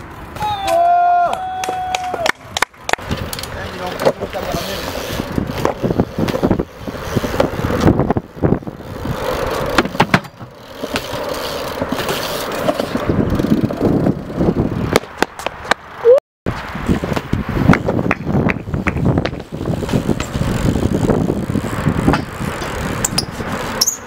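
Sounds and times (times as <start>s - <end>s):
bike landing clacks: 0.0s - 15.8s, 16.9s - 24.0s
bike tyres rolling on concrete: 0.0s - 24.0s
short rising squeak: 23.0s - 24.0s.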